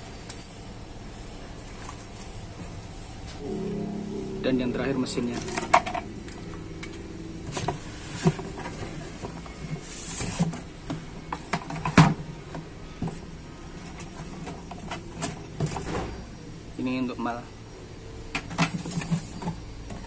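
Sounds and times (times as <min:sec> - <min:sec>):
cardboard rustle: 0:07.5 - 0:10.7.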